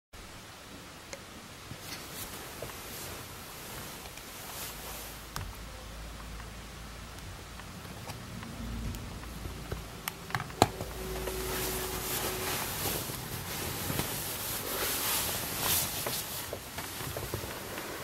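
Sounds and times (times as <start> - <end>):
blanket rustling: 1.7 - 5.4, 9.8 - 18.0.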